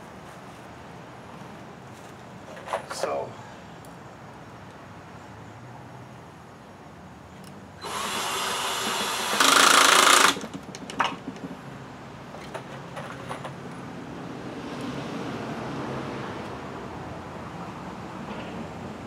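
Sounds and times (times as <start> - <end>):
cordless drill driving screw: 7.8 - 10.5.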